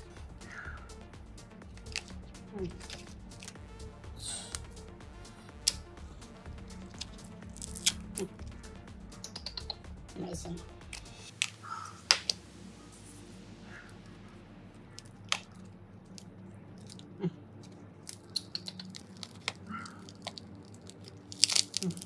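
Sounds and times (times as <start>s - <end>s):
steady low hum: 0.0s - 22.0s
sharp clicks and crunching handling: 1.8s - 2.2s, 17.6s - 22.0s.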